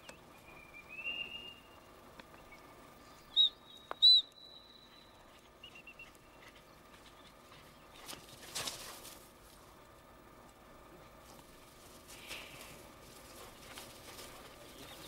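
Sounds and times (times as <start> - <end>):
shrill whistle blasts: 3.3 - 4.9.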